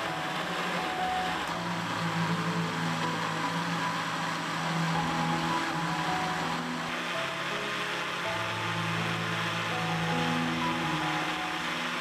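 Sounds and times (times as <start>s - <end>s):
blender motor running: 0.0s - 12.0s
soft background music: 0.0s - 12.0s.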